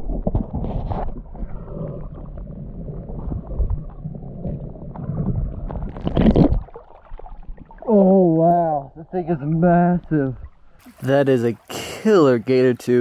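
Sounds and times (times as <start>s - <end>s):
underwater churning water: 0.0s - 8.2s.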